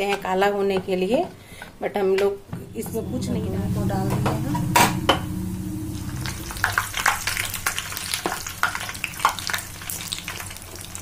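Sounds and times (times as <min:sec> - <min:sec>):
bread sizzling in hot oil: 0:06.0 - 0:11.0.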